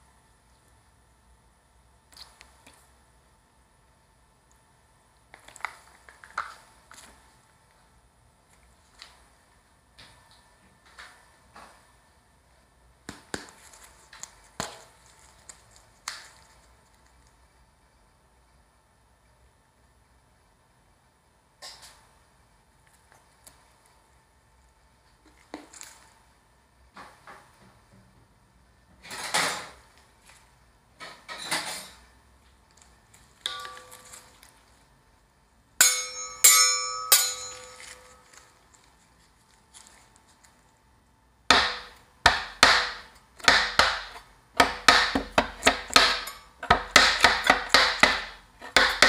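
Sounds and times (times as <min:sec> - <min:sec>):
metal spatulas clanging: 0:33.5 - 0:34.4, 0:35.8 - 0:38.4.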